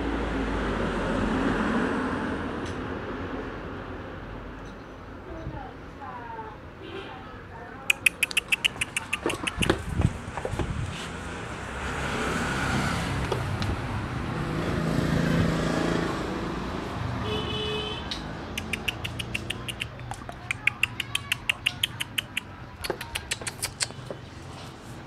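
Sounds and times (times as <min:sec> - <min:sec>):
motor vehicle passing: 0:00.0 - 0:04.6, 0:07.9 - 0:25.0
quick regular clicks: 0:07.9 - 0:10.0, 0:18.1 - 0:24.2.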